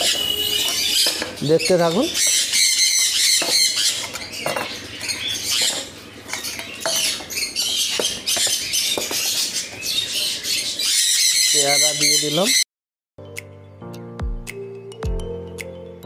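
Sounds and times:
metal bowls clinking on wood: 0:00.0 - 0:02.1, 0:03.4 - 0:09.8
parrots squawking and chattering: 0:00.0 - 0:12.6.

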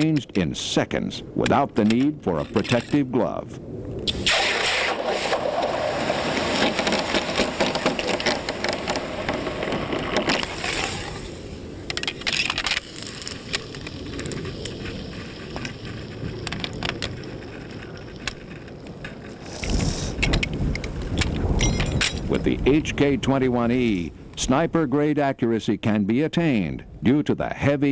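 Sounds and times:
metallic clicks and clacks: 0:01.4 - 0:03.1
hot barrel hissing in water: 0:04.1 - 0:08.6.

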